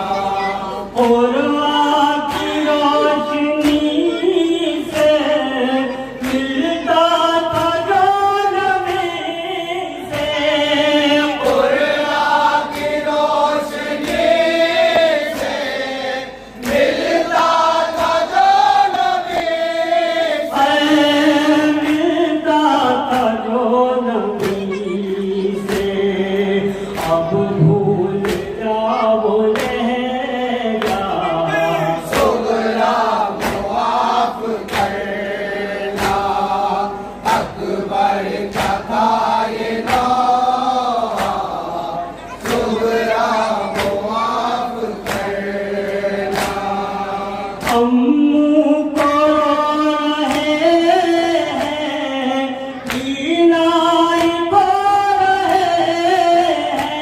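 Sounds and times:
man singing into a microphone: 0.0s - 13.7s, 20.0s - 34.8s, 35.8s - 57.0s
group of men chanting: 0.0s - 57.0s
chest-beating slaps: 32.1s - 35.0s.

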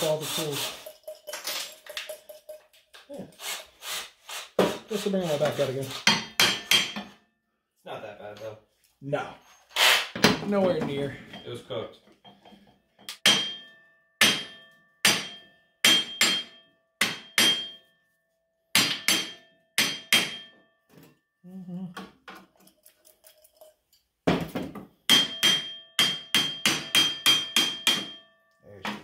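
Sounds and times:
hammer striking steel hub: 6.0s - 7.2s, 13.1s - 17.9s, 18.7s - 20.6s, 25.1s - 28.3s.

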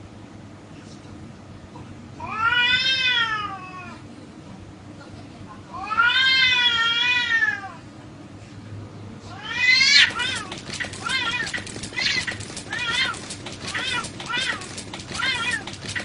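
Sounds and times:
cat yowling: 2.2s - 4.0s, 5.8s - 7.8s, 9.3s - 16.0s.

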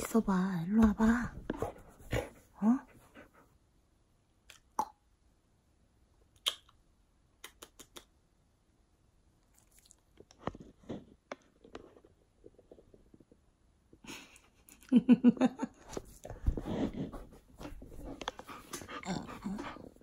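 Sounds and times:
dog licking and mouthing: 9.4s - 10.2s.

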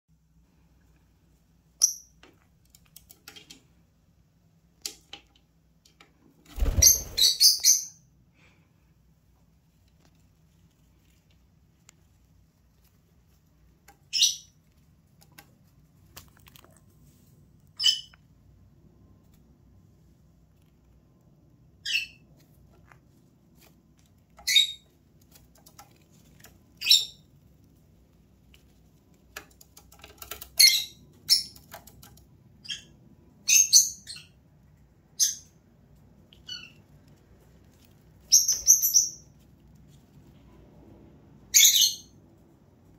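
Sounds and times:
lovebirds chirping: 6.6s - 8.1s, 14.0s - 14.6s, 36.4s - 36.9s, 38.2s - 39.4s, 41.5s - 42.2s.

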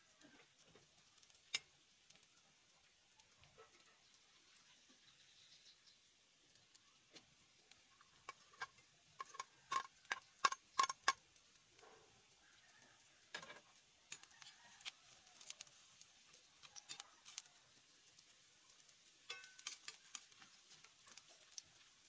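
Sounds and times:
utensil stirring in a pan: 0.0s - 22.0s
spoon clinking on plate and pan: 8.2s - 11.2s, 19.2s - 20.2s.

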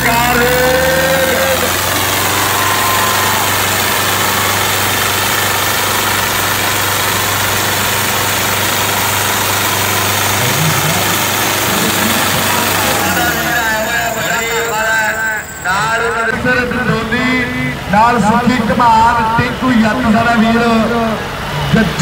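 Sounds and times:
tractor engines under heavy load: 0.0s - 22.0s.

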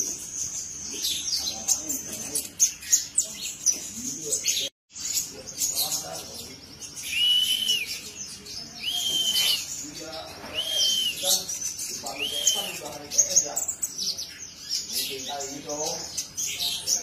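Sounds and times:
bird whistles: 7.0s - 8.2s, 8.8s - 9.8s, 10.4s - 13.0s.

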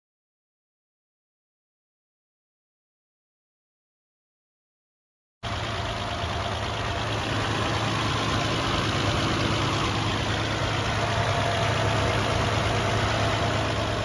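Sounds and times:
car engine idling: 5.4s - 14.0s.

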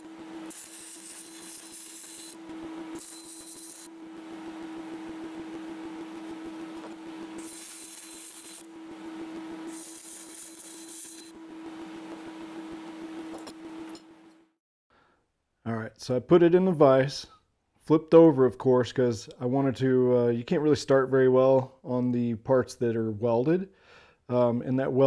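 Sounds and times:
welding arc crackle: 0.0s - 14.0s
welder hum: 0.0s - 14.6s.

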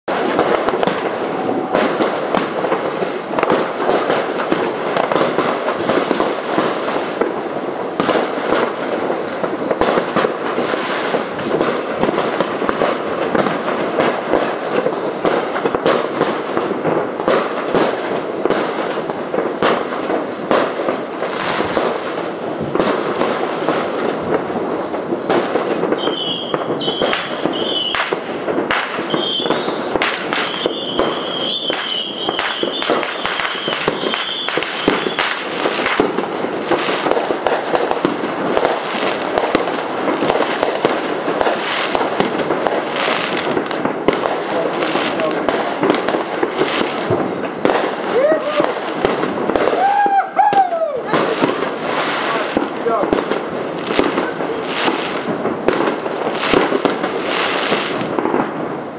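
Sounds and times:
fireworks bangs and crackles: 0.0s - 58.9s
high falling whistles: 0.9s - 2.0s, 2.8s - 4.0s, 7.1s - 8.1s, 8.8s - 9.9s, 11.0s - 11.9s, 14.8s - 17.8s, 18.7s - 21.3s, 24.4s - 35.3s.

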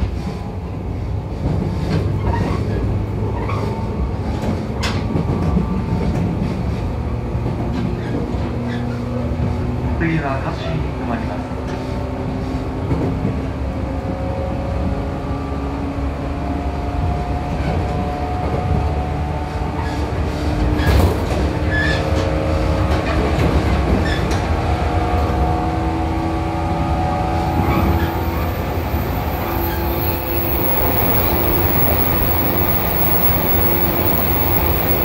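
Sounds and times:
train wheels rumbling on rail: 0.0s - 35.0s
train motor hum: 27.3s - 35.0s.

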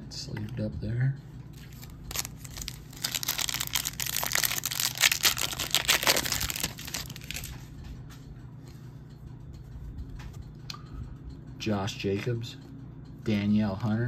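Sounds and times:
wrapper crinkling and tearing: 1.6s - 7.6s.

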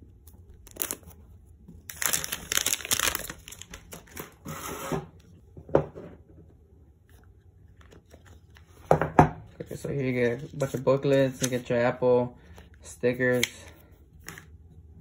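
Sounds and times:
plastic wrap crinkling and tearing: 0.6s - 1.2s, 1.8s - 4.4s.

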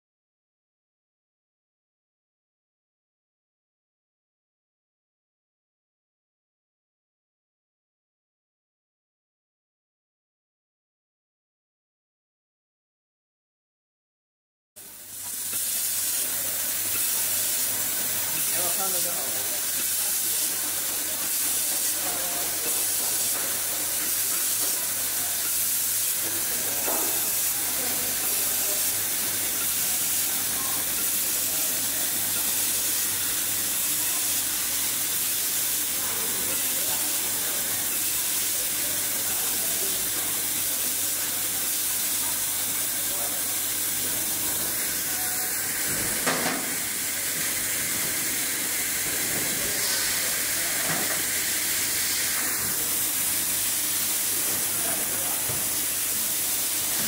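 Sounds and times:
laser welding hiss: 14.8s - 57.0s.

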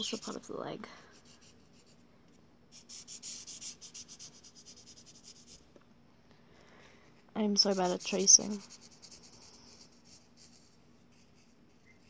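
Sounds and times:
pencil scratching on paper: 0.0s - 0.5s, 1.1s - 2.0s, 2.7s - 5.6s, 7.6s - 12.0s.

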